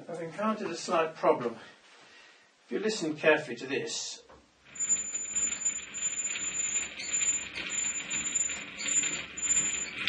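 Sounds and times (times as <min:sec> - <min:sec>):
lathe carriage rattling clatter: 0:04.7 - 0:10.0
thin high whine: 0:04.7 - 0:10.0.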